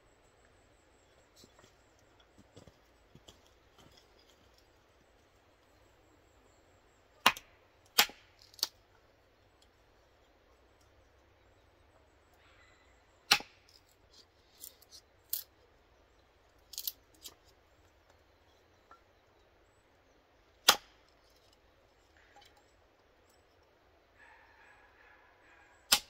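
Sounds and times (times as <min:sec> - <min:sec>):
wood cracking and pieces falling: 0:02.4 - 0:04.8
hatchet chopping wood: 0:07.2 - 0:08.8, 0:13.2 - 0:13.7, 0:20.6 - 0:21.0.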